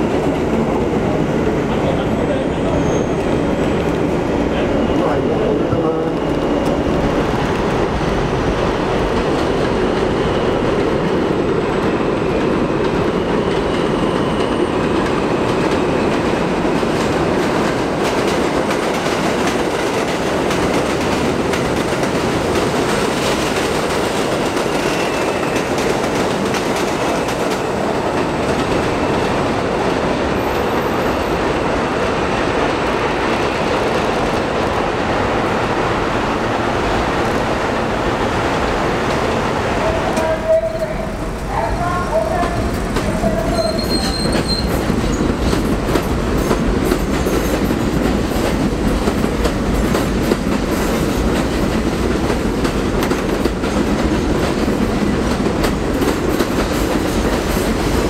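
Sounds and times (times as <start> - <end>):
clickety-clack over rail joints: 0.0 - 35.6, 38.7 - 58.0
train wheels rumbling on rail: 0.0 - 58.0
faint wheel squeal: 43.5 - 44.8.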